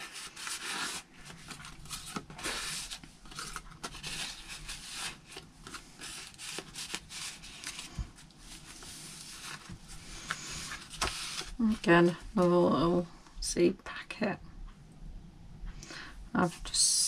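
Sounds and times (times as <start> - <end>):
pages turned: 0.0 - 11.8
paper cards rustling: 0.0 - 12.2.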